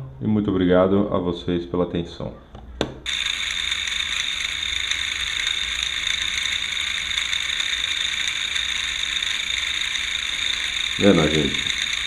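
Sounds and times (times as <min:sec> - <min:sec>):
drone propellers whining: 0:03.1 - 0:12.0.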